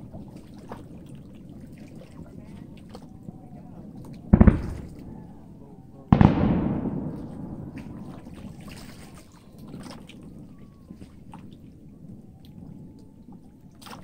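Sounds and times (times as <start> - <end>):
firework shells bursting: 4.4 - 5.4, 6.1 - 8.6.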